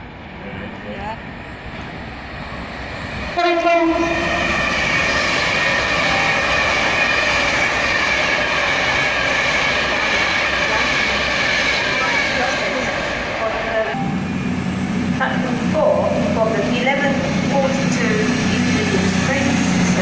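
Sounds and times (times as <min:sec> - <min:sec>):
train passing at speed: 0:00.0 - 0:20.0
train horn blast: 0:03.4 - 0:04.6.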